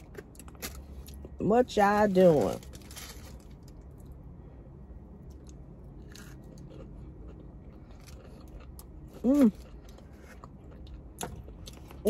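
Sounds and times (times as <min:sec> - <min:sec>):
person chewing food: 0:00.0 - 0:01.4, 0:05.2 - 0:12.0
steady low hum: 0:00.0 - 0:12.0.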